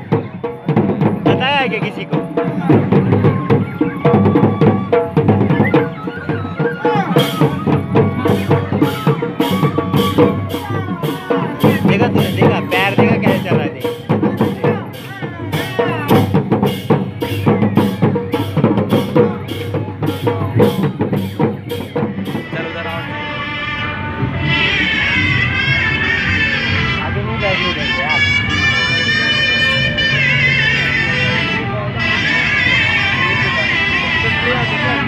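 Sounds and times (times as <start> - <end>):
barrel drums beating: 0.0 - 23.0.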